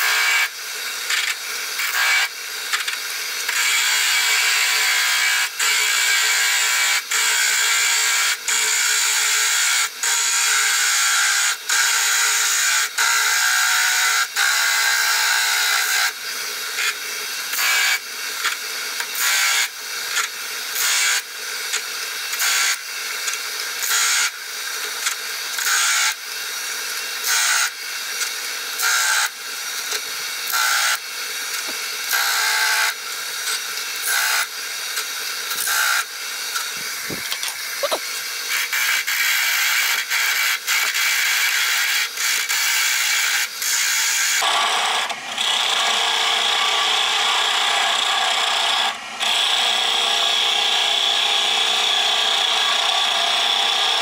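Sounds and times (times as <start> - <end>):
lathe humming: 31.2 - 38.3
turning tool scraping wood: 36.5 - 38.1.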